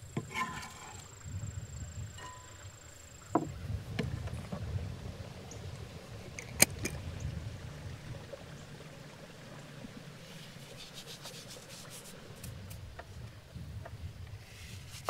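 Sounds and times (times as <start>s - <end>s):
low steady rumble: 0.0s - 15.0s
scraping on wooden surface: 0.2s - 1.1s.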